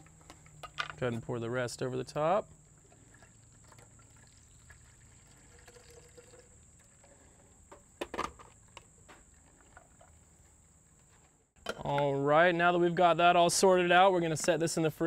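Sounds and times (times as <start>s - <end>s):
juice trickling through strainer: 2.7s - 7.7s.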